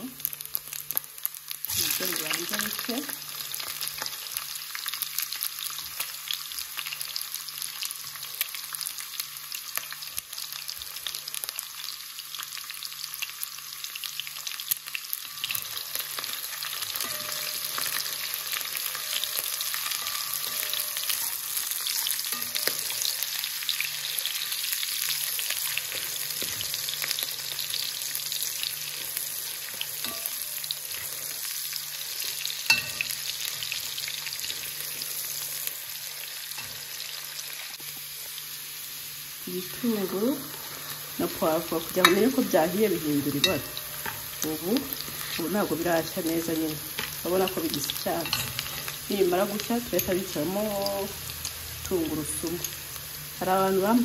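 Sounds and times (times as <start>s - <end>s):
vegetables and meat sizzling in oil: 0.0s - 54.0s
spoon stirring in pot: 15.4s - 23.3s.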